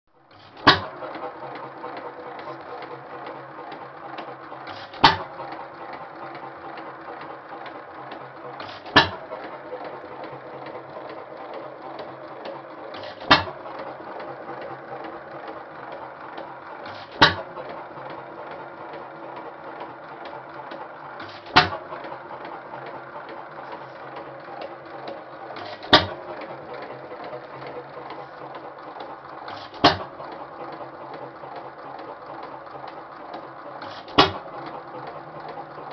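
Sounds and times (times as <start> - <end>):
engine mechanical clatter: 0.1 - 35.9
engine firing pops: 0.4 - 1.1, 4.6 - 6.0, 8.2 - 9.6, 12.9 - 13.9, 16.8 - 18.7, 21.2 - 22.2, 23.6 - 28.6, 29.4 - 31.3, 33.8 - 35.6.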